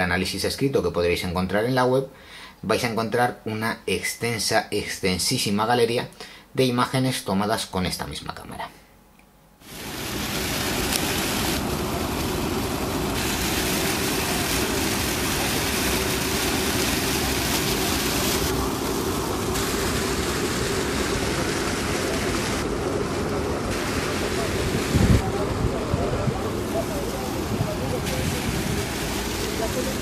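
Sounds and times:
fountain water splashing: 9.7 - 30.0.

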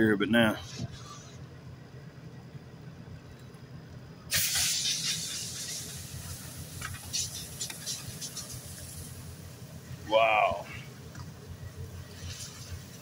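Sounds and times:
fire crackles: 2.8 - 13.0
loud hiss: 4.3 - 13.0.

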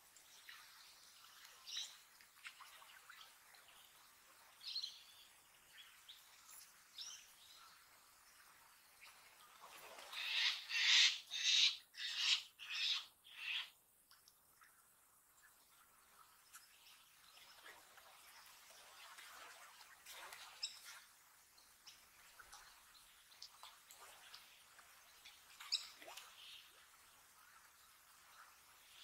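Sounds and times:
birds calling harshly: 10.2 - 13.7.

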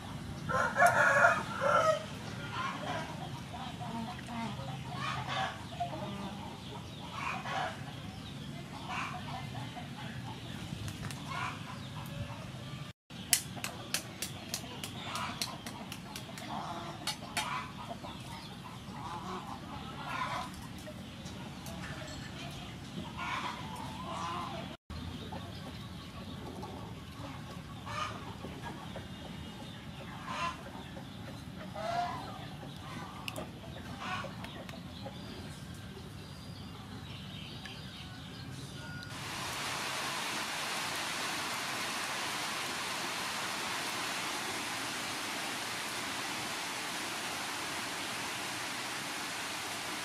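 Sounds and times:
chickens clucking: 0.0 - 12.7, 13.3 - 36.2
steady low background noise: 16.5 - 50.0
heavy rain on leaves: 39.1 - 50.0.

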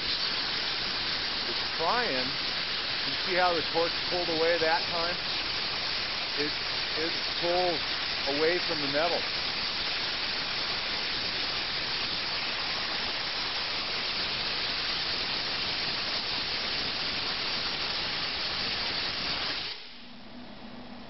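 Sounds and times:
plasma cutter torch hissing: 0.0 - 20.1
low hum with steady tones: 19.7 - 21.0.

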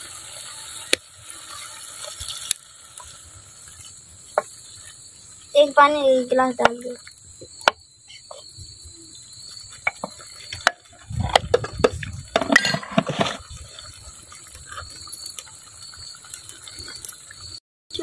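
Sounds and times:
crickets trilling: 0.0 - 18.0
watery sloshing and knocking: 9.8 - 13.6
wooden ladle stirring: 11.3 - 13.9.

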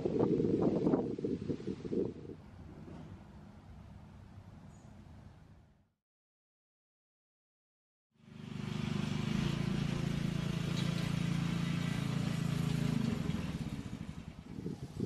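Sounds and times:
engine running steadily: 8.2 - 15.0.

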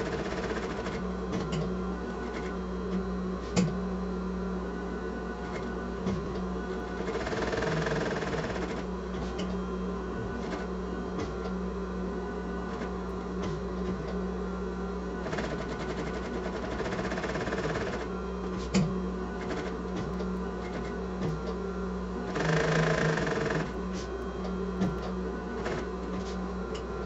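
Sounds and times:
sewing machine stitching: 0.0 - 1.0, 6.9 - 8.9, 15.2 - 18.1, 22.2 - 23.8
steady hum: 0.0 - 27.0.

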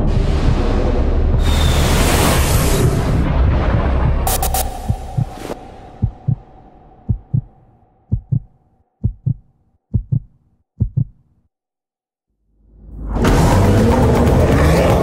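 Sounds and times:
heartbeat double thumps: 0.2 - 1.6, 3.9 - 11.3.

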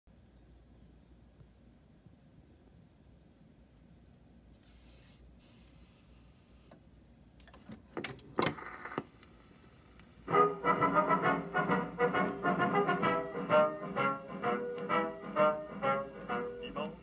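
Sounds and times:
phonograph mechanism clicking: 7.4 - 9.1
brass band music from speaker: 10.3 - 17.0.

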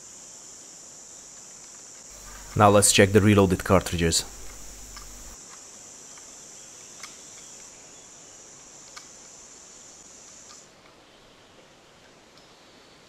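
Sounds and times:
insects chirring: 0.3 - 10.6
rifle handling clicks: 4.4 - 5.3.

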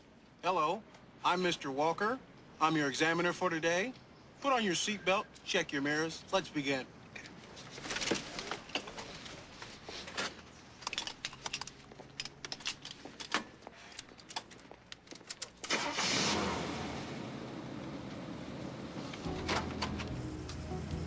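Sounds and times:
car engine starting and running: 15.5 - 21.0.

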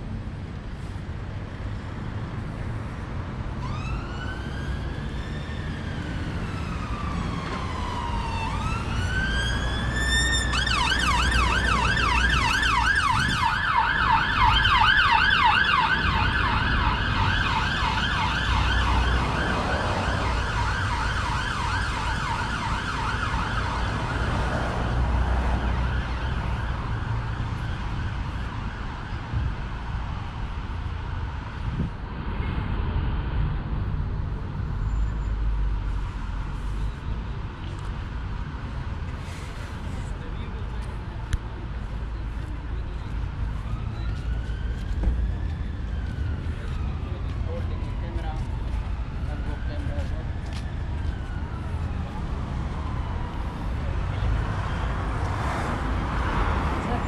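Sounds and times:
low traffic rumble: 0.0 - 57.0
ambulance siren: 3.4 - 31.9, 41.8 - 57.0.

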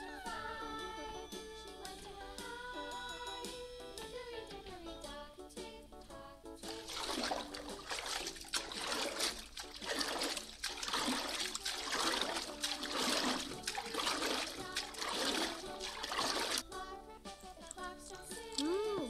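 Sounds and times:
water sloshing and splashing: 6.6 - 16.7.

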